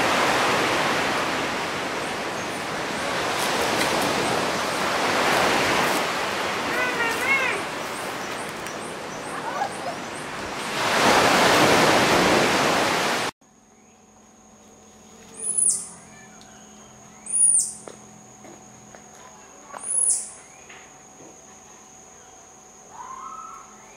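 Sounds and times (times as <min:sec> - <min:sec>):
surf washing on beach: 0:00.0 - 0:13.3
thin insect drone: 0:00.1 - 0:11.1, 0:13.4 - 0:23.9
sharp high-pitched chirps: 0:15.3 - 0:17.9, 0:19.8 - 0:20.4.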